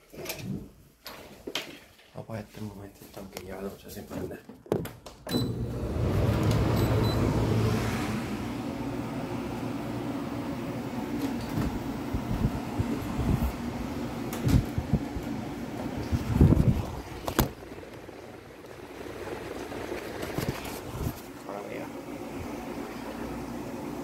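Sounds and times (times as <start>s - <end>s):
air conditioner motor hum: 5.2s - 24.0s.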